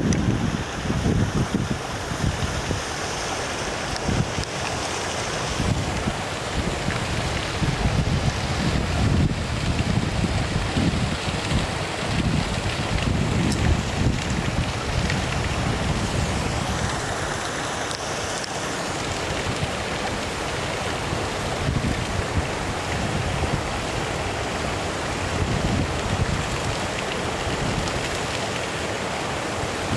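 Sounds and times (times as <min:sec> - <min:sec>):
wind buffeting microphone: 0:00.0 - 0:02.9, 0:05.5 - 0:17.0, 0:21.2 - 0:23.9, 0:25.2 - 0:26.8
waterfall rushing: 0:00.0 - 0:29.9.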